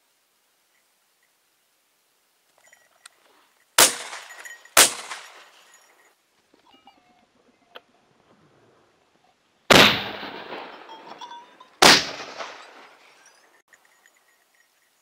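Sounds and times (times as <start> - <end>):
shotgun shots echoing: 3.8 - 5.6, 9.7 - 11.2, 11.8 - 13.2.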